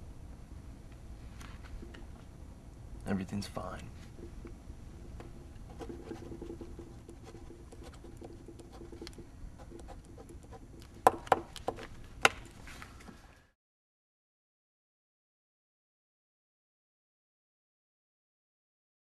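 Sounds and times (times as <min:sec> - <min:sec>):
faint background noise: 0:00.0 - 0:13.6.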